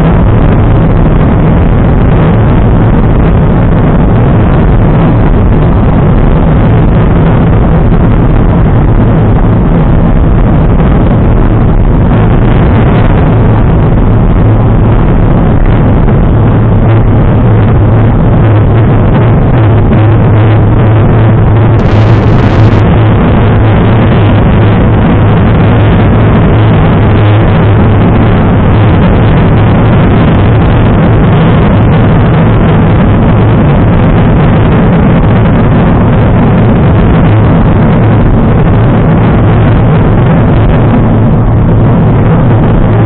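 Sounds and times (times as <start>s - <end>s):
wind rushing over microphone: 0.0s - 43.0s.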